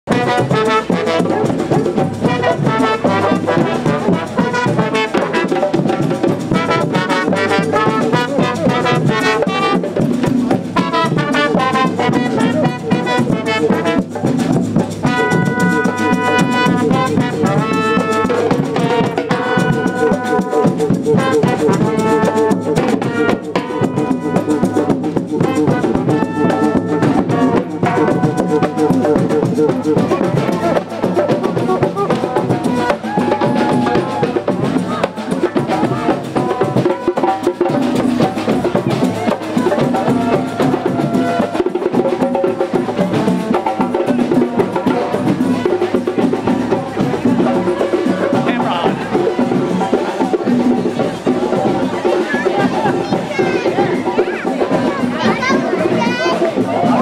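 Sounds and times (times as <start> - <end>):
brass street band playing: 0.0 - 57.0
drums beating: 0.1 - 57.0.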